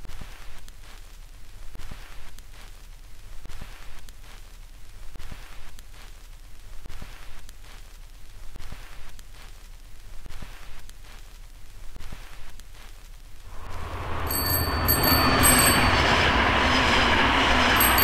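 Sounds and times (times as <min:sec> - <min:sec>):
hissing static with crackles: 0:00.0 - 0:14.4
steady low hum: 0:00.0 - 0:18.0.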